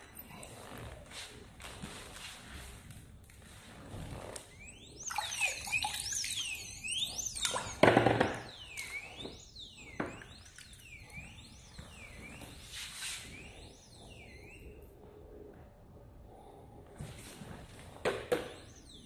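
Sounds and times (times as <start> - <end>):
alarm siren rising and falling: 3.9 - 15.6, 17.0 - 19.0.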